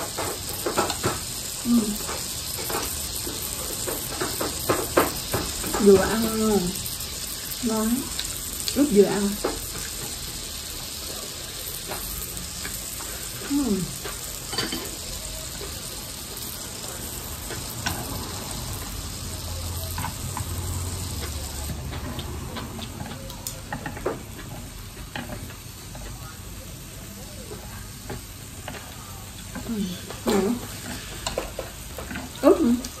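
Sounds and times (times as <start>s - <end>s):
meat sizzling in a grill pan: 0.0s - 33.0s.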